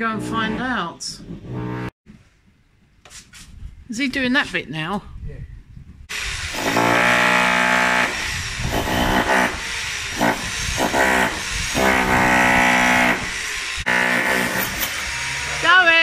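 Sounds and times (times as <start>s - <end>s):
demolition hammer chiselling concrete: 6.1s - 16.0s.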